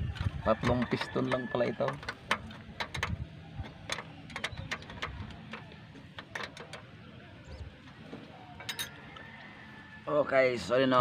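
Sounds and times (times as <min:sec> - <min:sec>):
clicks of metal parts handled: 0:00.6 - 0:06.8.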